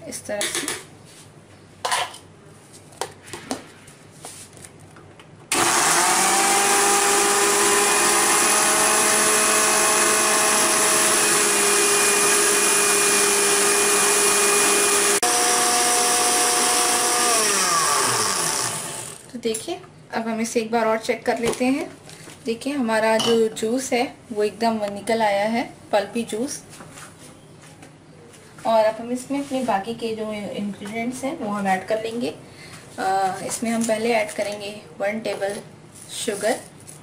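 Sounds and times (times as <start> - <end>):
mixer grinder blending: 5.5 - 19.2.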